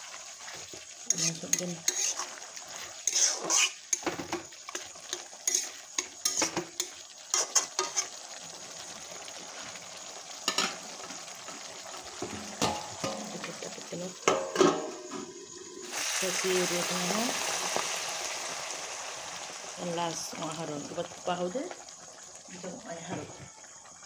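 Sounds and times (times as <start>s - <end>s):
frying sizzle: 0.0s - 24.0s
metal spatula scraping a wok: 1.1s - 8.1s.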